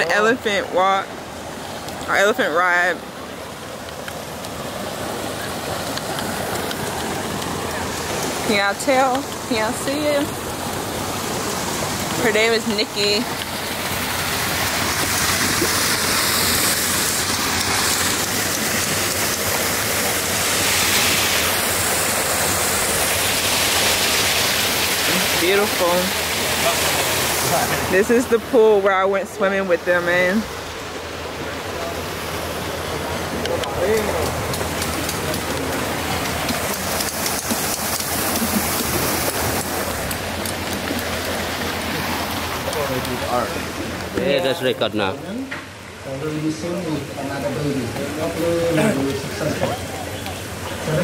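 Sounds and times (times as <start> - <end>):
water pouring into a pool: 3.0 - 9.5, 13.2 - 28.0, 30.9 - 44.6.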